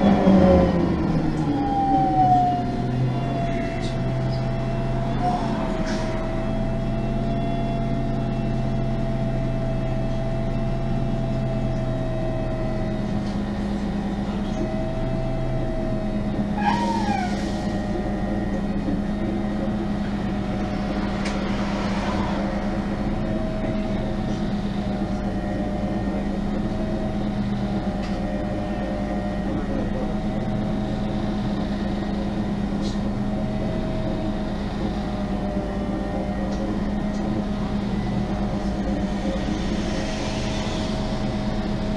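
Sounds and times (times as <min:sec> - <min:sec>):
bus engine whining: 0:00.0 - 0:41.9
falling squeak: 0:16.6 - 0:17.4.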